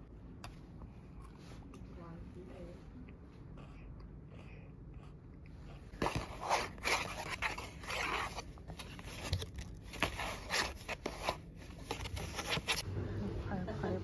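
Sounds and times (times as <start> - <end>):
fingers rummaging in cardboard box: 6.0 - 12.8.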